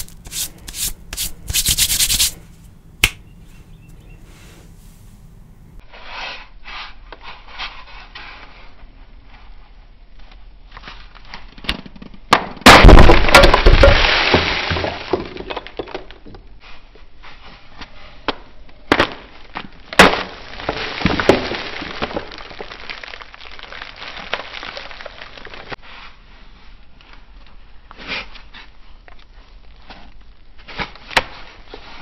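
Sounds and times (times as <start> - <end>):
chalk block cracking: 0.0 - 2.4
chalk crumbling gritty rustle: 0.0 - 2.8.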